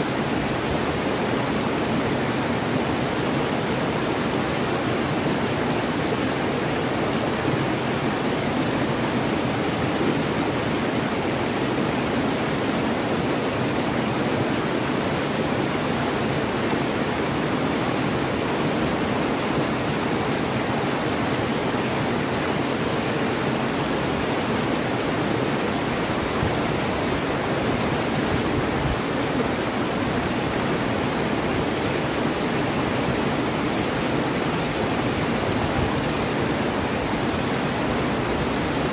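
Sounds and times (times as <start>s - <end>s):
river rapids rushing over rocks: 0.0s - 38.9s.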